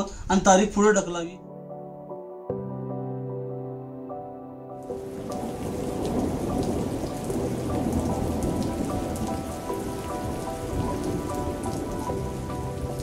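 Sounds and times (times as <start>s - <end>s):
soft music of long held notes: 1.4s - 13.0s
heavy rain pattering: 4.8s - 13.0s.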